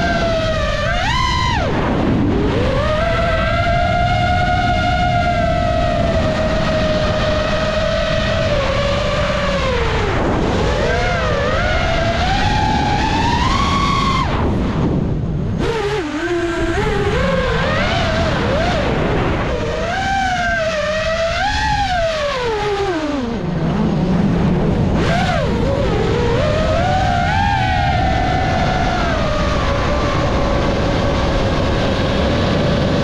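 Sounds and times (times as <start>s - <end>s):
rushing air: 0.0s - 22.2s
drone motors and propellers whining: 0.0s - 33.0s.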